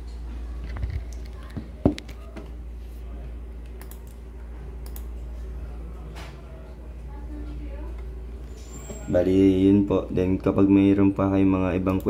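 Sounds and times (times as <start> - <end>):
steady low hum: 0.0 - 12.0
keyboard keys clicking: 3.7 - 4.2.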